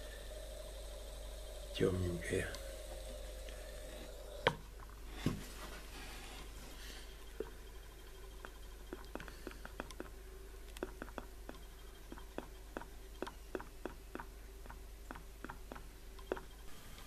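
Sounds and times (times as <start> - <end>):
steady low hum: 0.0 - 17.0
small sharp clicks: 8.4 - 16.7.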